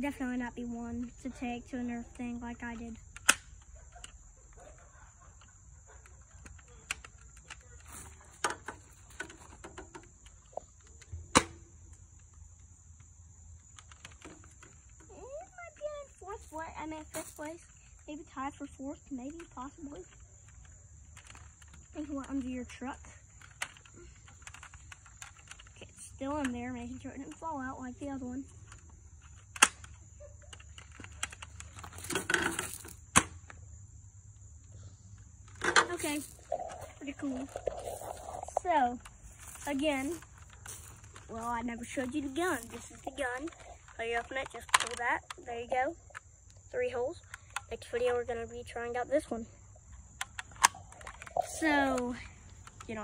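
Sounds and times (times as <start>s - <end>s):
insects chirring: 0.0s - 53.0s
rustle of handling: 35.9s - 44.0s.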